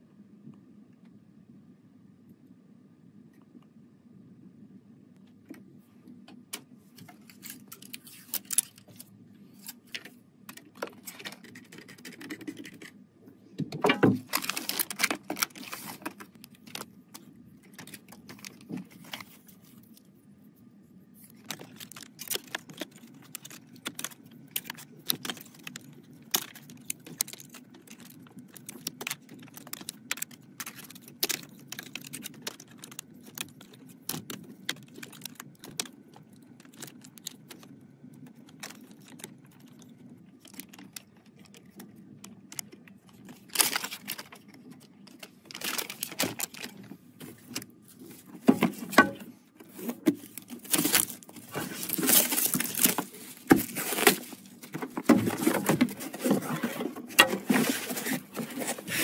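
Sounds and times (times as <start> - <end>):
plastic bag crinkling: 7.1 - 11.9, 13.9 - 20.1, 21.2 - 59.0
small plastic parts clicking: 21.2 - 46.9.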